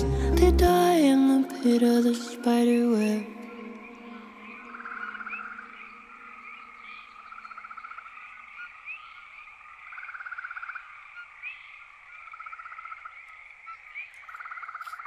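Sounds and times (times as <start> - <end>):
low sustained music tones: 0.0 - 7.7
frogs trilling: 2.2 - 15.0
frog chirps: 3.4 - 15.0.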